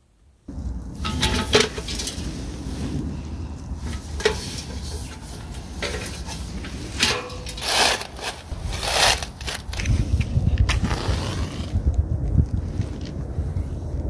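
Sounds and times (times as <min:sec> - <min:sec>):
sticks scraping against can: 0:03.8 - 0:11.8.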